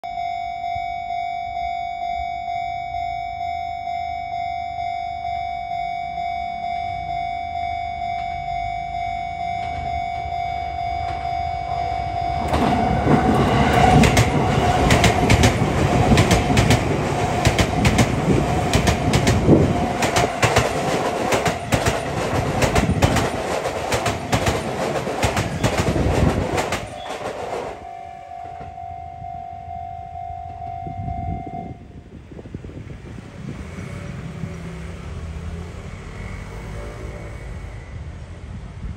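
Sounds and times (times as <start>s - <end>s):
crossing warning bell ringing: 0.0s - 32.0s
train wheels clattering over rail joints: 12.4s - 27.8s.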